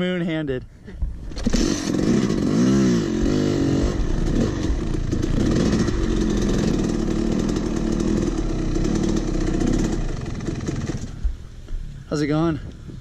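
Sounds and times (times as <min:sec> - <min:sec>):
dirt bike engine running: 0:01.2 - 0:11.5.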